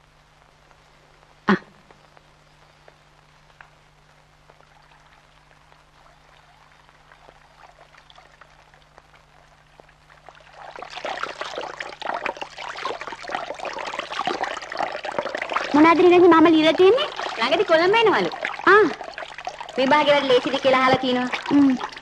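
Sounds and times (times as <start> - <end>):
faint steady hum: 0.0 - 22.0
water running and splashing: 4.5 - 22.0.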